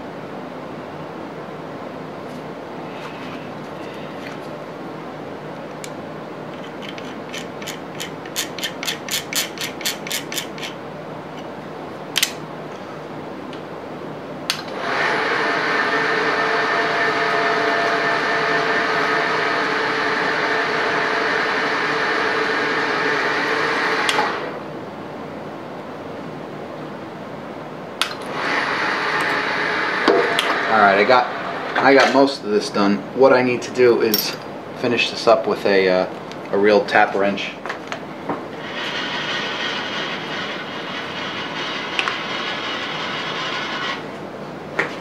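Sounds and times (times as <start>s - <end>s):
milling machine motor running: 14.7s - 24.6s, 28.2s - 31.9s, 38.5s - 44.1s.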